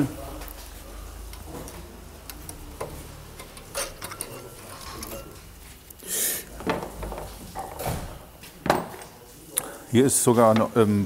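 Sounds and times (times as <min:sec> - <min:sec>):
metal scrape: 0:02.9 - 0:06.3.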